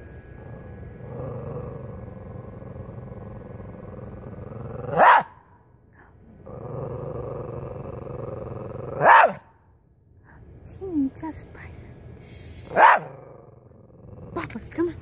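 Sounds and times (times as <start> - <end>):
small dog growling: 0.4 - 5.2, 6.3 - 9.1
dog barking sharply: 5.0 - 5.4, 9.0 - 9.4.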